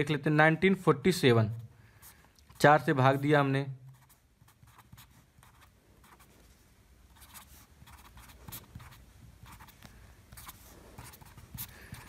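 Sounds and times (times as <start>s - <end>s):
pen scratching on paper: 3.9s - 6.4s, 7.1s - 12.0s.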